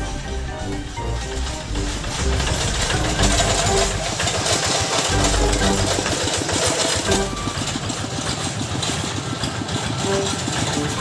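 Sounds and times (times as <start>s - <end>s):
single-cylinder diesel engine running: 0.0s - 11.0s.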